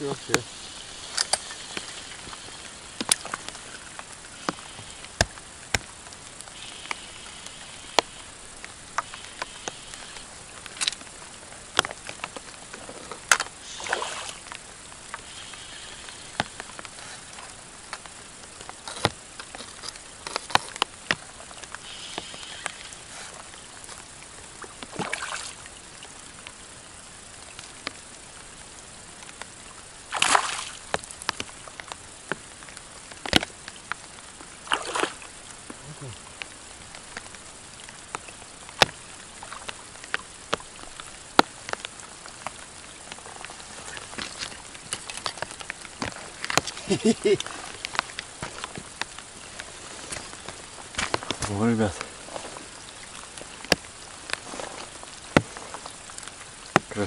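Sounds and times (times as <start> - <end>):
rain falling on a pond: 0.0 - 57.0
splash in water: 13.7 - 14.4, 24.9 - 25.6, 30.1 - 30.8, 34.6 - 35.2.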